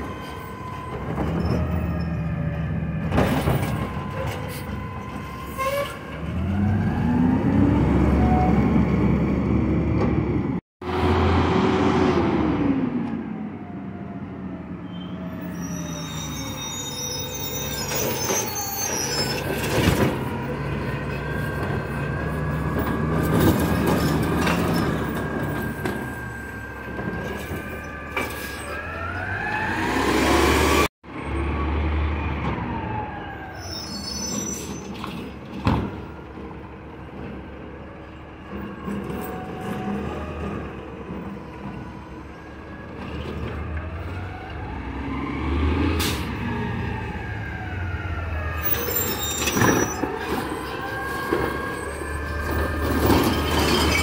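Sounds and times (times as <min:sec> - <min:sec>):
diesel engine revving: 0:06.2 - 0:13.6, 0:28.7 - 0:32.8, 0:43.4 - 0:48.8.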